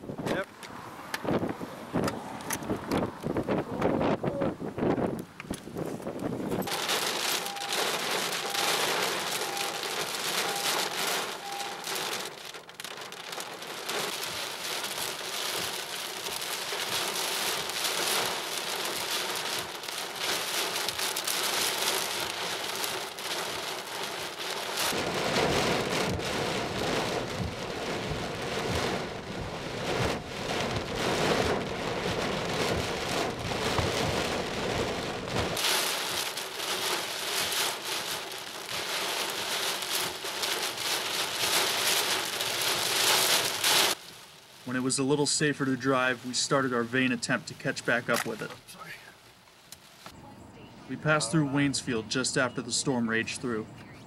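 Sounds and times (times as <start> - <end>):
heavy rain pounding a car: 6.0 - 50.1
faint beeps: 6.6 - 12.0.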